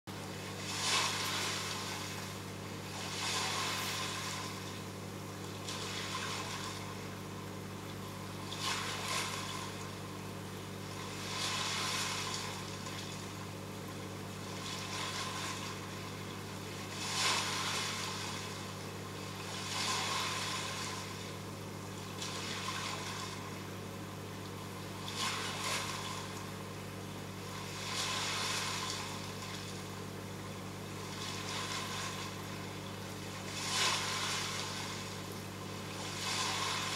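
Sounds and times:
pump hum: 0:00.1 - 0:36.9
rushing water: 0:00.4 - 0:07.1, 0:31.1 - 0:36.9.

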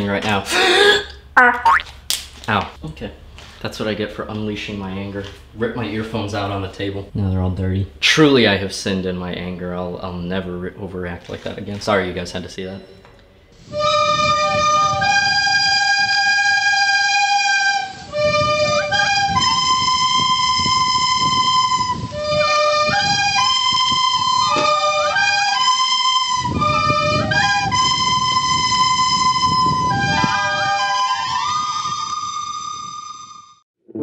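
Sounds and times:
lower accompaniment: 0:13.6 - 0:33.6.

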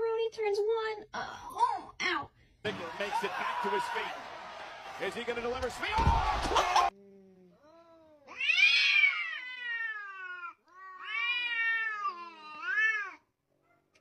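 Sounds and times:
cat yowling: 0:08.3 - 0:13.2.

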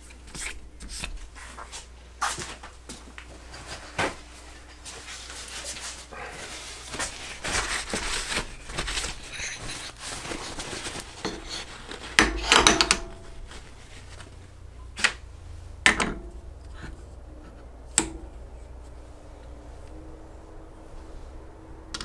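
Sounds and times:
cloth rubbing on steel: 0:04.4 - 0:15.8
steel tools clunking down: 0:11.2 - 0:13.4
sharp metal knocks: 0:12.2 - 0:13.3, 0:15.8 - 0:16.4.

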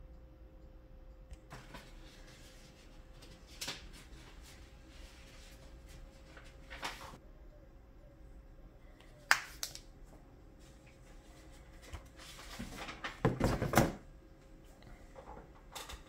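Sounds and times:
plastic sleeves rustling: 0:01.5 - 0:07.2.

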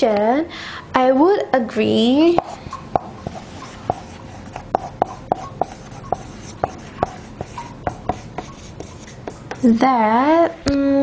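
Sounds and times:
marker pen writing on whiteboard: 0:02.3 - 0:09.8.

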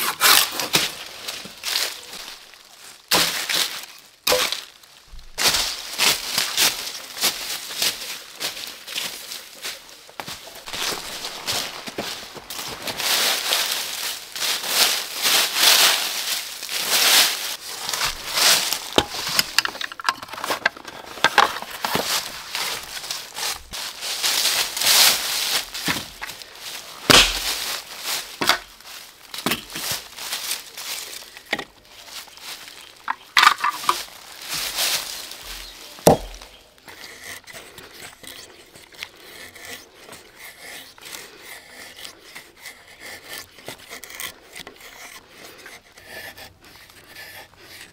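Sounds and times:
knife scraping a dry stick: 0:00.0 - 0:02.5, 0:05.4 - 0:47.9
dry leaves rustling and crunching: 0:00.2 - 0:36.9.

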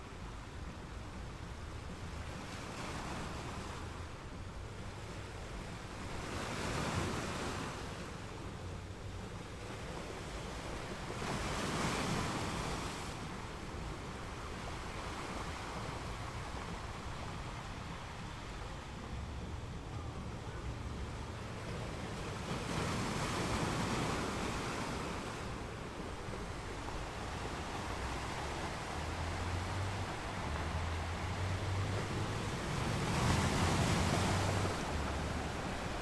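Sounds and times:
steady rushing noise: 0:24.5 - 0:36.0.

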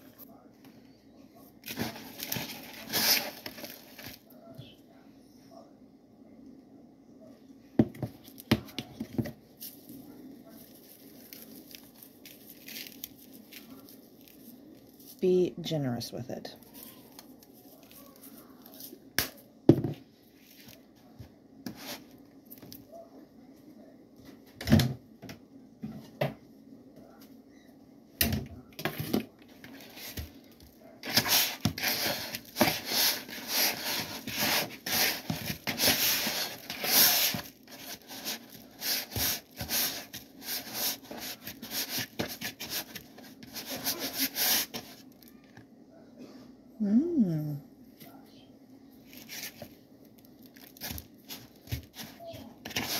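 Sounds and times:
meat scraping and rustling in bowl: 0:01.6 - 0:04.2, 0:31.0 - 0:45.0, 0:50.6 - 0:52.9.

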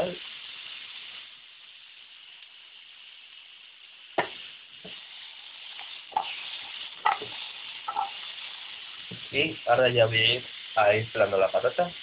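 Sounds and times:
mushrooms sizzling in oil: 0:00.0 - 0:12.0.

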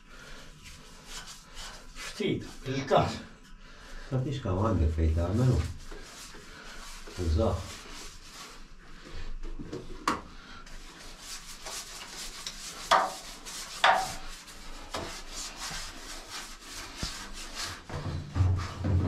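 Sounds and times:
gloved hand scrubbing steel: 0:10.6 - 0:18.6.

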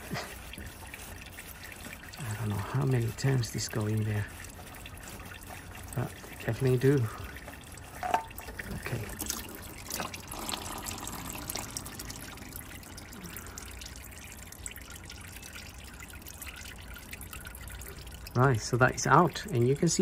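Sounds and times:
oil trickling into drain pan: 0:00.0 - 0:20.0.

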